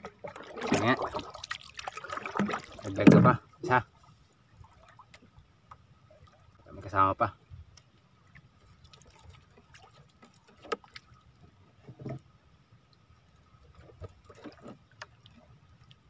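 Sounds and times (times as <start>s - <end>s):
water lapping against boat hull: 0.0s - 16.0s.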